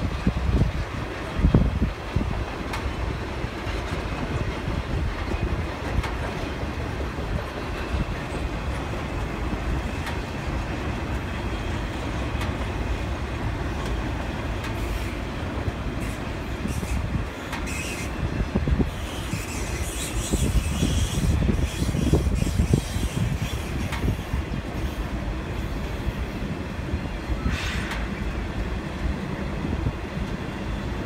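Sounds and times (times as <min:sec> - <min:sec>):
steel wheels rumbling on rail: 0:00.0 - 0:31.0
clicks over rail joints: 0:05.8 - 0:06.5.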